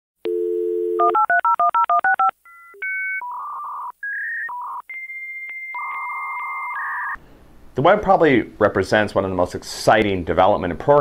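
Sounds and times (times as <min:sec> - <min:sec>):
dial tone: 0:00.3 - 0:07.2.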